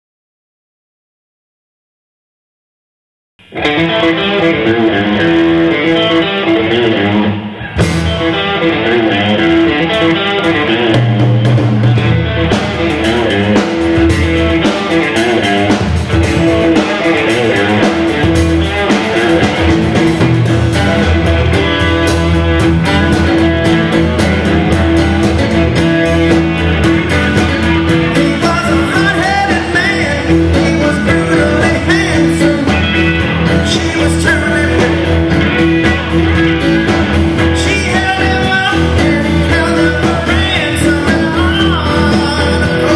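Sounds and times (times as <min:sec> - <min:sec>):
bass guitar: 0:03.4 - 0:42.9
electric guitar: 0:03.4 - 0:42.9
drums and cymbals: 0:07.4 - 0:42.9
man singing: 0:12.8 - 0:42.9.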